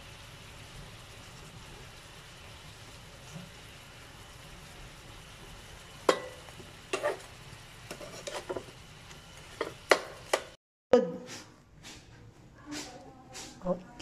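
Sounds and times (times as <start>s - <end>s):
shrimp sizzling in oil: 0.0s - 10.6s
spatula knocking and scraping pan: 6.0s - 8.8s, 9.4s - 10.6s.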